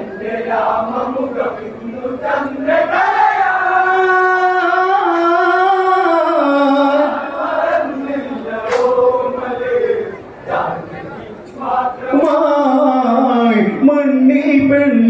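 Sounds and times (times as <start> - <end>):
person singing long wordless note: 3.5 - 7.2.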